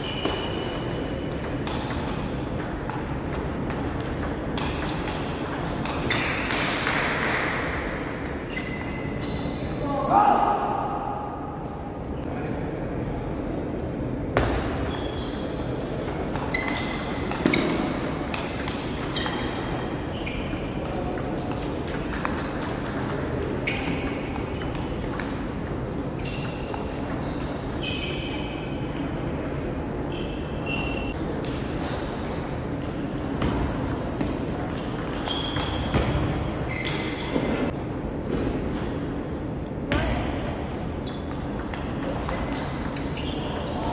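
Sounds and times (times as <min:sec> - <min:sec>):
sports hall hum: 0:00.0 - 0:43.9
short high squeaks: 0:08.5 - 0:09.8, 0:30.1 - 0:31.1.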